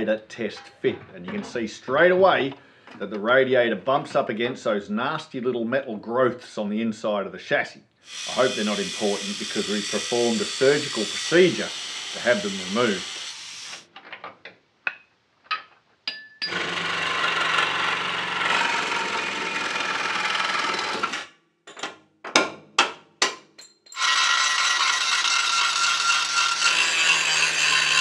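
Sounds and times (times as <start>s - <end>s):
angle grinder cutting steel: 8.1s - 13.8s, 16.4s - 21.2s, 24.0s - 28.0s.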